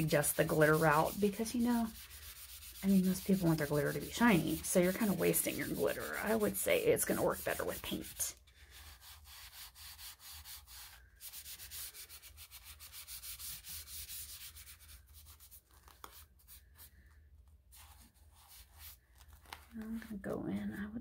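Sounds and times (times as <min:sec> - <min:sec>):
scouring pad scrubbing a tumbler: 0:00.0 - 0:15.4.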